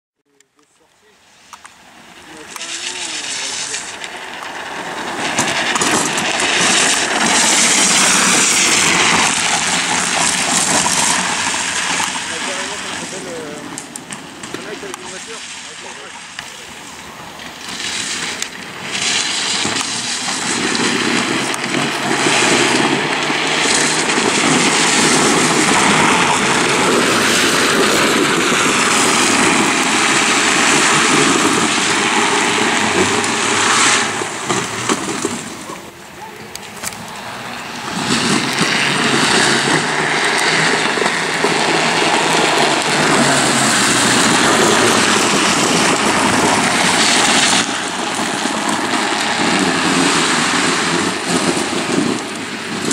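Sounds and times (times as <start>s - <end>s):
plastic wheels scraping on asphalt: 1.3s - 52.9s
wind on microphone: 16.7s - 52.9s.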